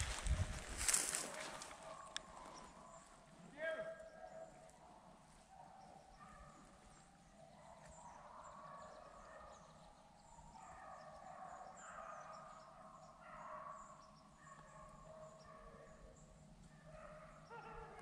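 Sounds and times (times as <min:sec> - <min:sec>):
hounds baying in distance: 0:00.1 - 0:18.0.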